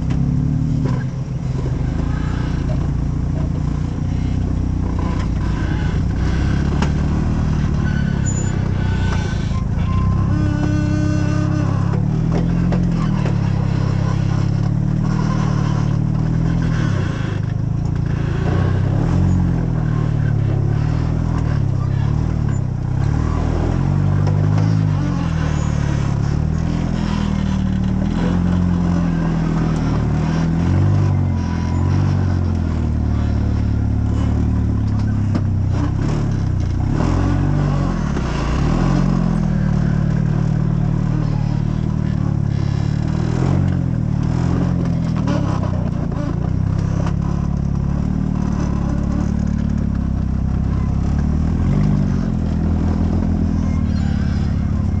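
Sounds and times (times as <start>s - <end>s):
vehicle knocks and clatter: 0.0s - 41.0s
off-road vehicle engine revving: 0.0s - 55.0s.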